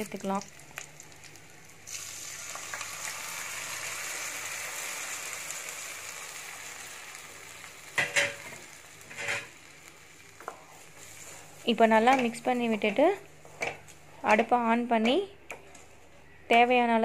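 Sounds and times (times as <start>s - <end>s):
oil sizzling: 0.0s - 13.2s.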